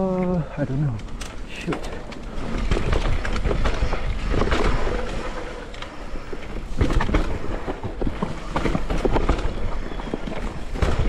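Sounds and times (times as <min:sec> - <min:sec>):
bike clicks and rattles: 0:00.0 - 0:11.0
low rumble of tyres: 0:00.0 - 0:11.0.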